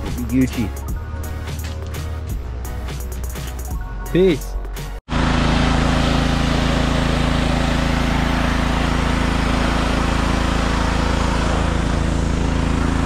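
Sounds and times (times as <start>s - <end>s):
engine humming with hiss: 5.1s - 13.0s.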